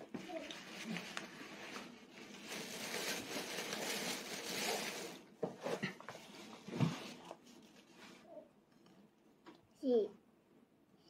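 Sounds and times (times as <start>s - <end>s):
crinkly rustling: 0.0s - 8.3s.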